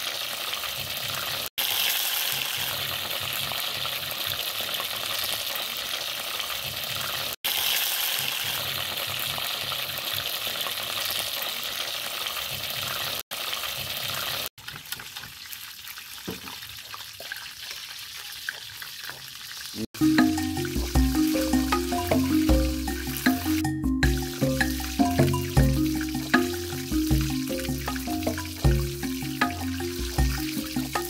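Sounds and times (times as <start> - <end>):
chicken sizzling in hot oil: 0.0 - 31.0
music: 20.0 - 31.0.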